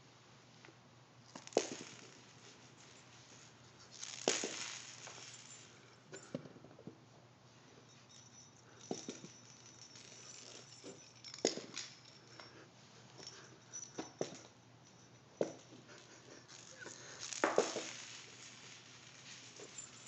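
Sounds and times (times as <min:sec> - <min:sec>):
plastic balls knocking on carpet: 0:01.3 - 0:02.2.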